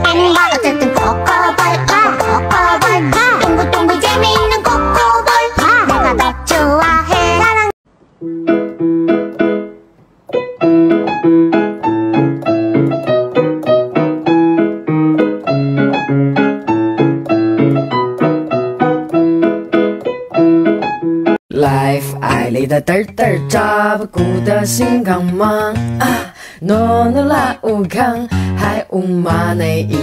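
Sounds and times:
piano music: 0.0 - 22.6.

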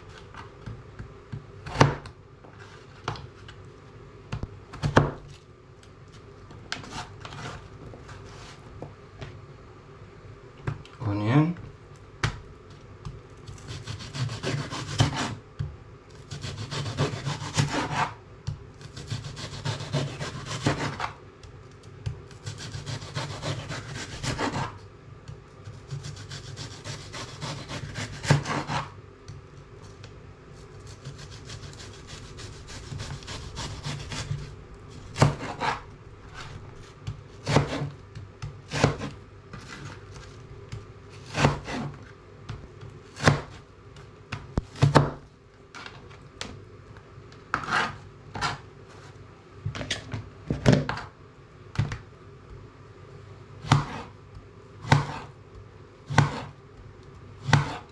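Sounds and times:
knife sawing through potato: 13.6 - 15.4, 16.3 - 18.2, 18.8 - 21.2, 22.4 - 24.8, 25.7 - 29.0, 30.9 - 34.5, 35.1 - 36.6, 37.4 - 37.9, 41.1 - 41.9, 47.6 - 48.6, 54.8 - 55.3, 56.1 - 56.6, 57.4 - 57.9.

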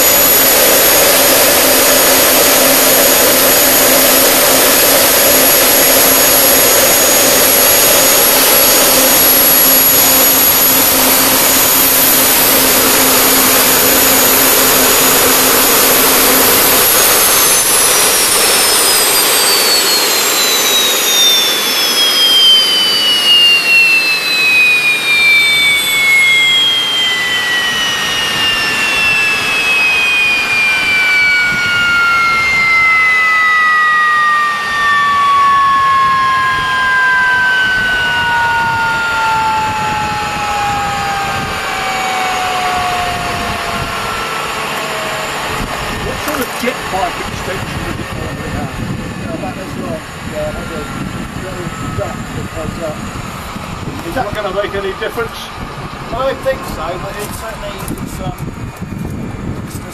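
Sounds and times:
gas turbine whining: 0.0 - 59.9.

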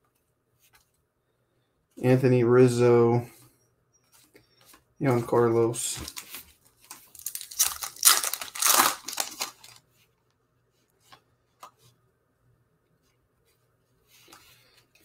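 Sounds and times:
wrapper torn open and crinkled: 6.9 - 9.8.

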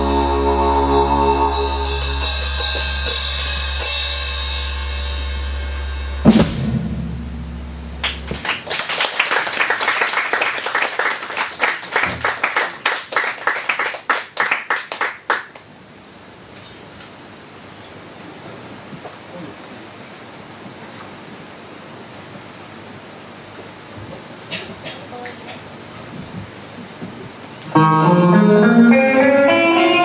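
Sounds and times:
fast drum and cymbal strokes: 0.0 - 7.9
rock band playing: 0.0 - 8.4, 27.7 - 30.0.

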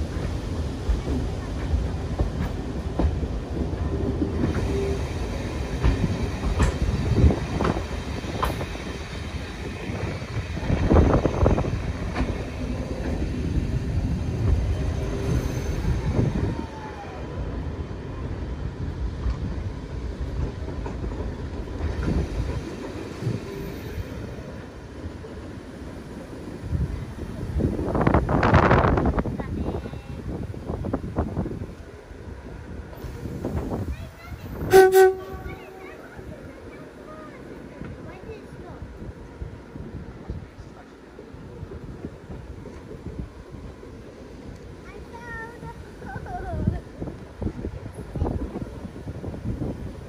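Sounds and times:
train wheels rumbling on rails: 0.0 - 50.0.

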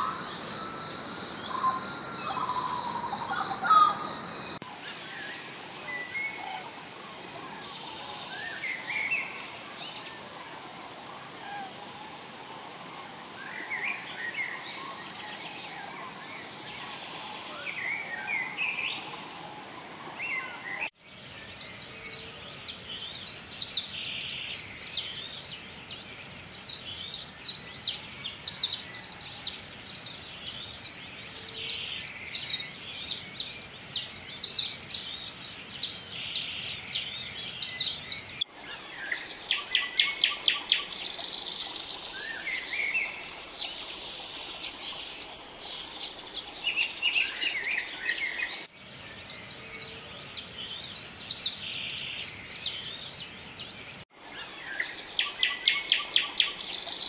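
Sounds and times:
birds singing trills: 0.0 - 4.6, 13.4 - 57.0
songbirds chirping: 0.0 - 57.0.

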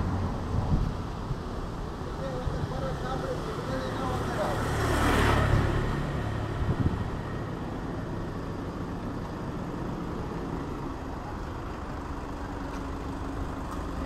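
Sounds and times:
engine rumble and traffic noise: 0.0 - 14.0.

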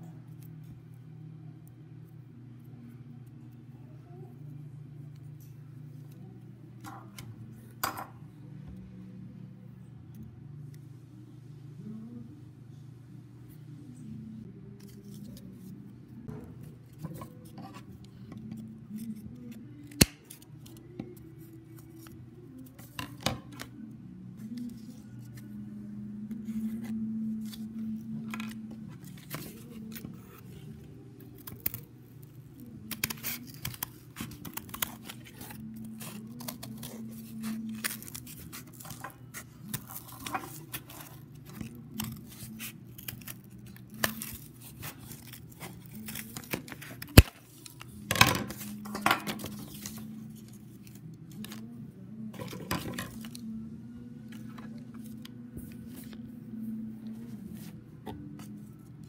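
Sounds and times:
steady low hum: 0.0 - 59.0
scissors snipping cardboard: 19.8 - 20.4.

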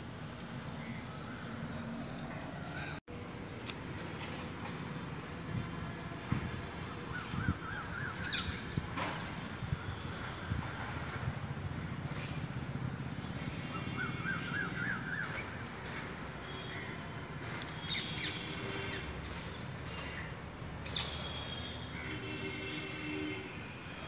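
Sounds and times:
birds calling and chirping: 7.1 - 8.8.

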